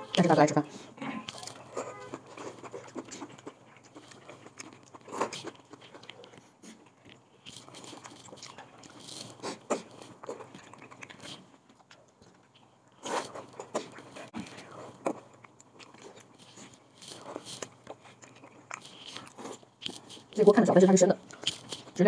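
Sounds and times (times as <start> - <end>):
man chewing food wetly: 0.0 - 22.0.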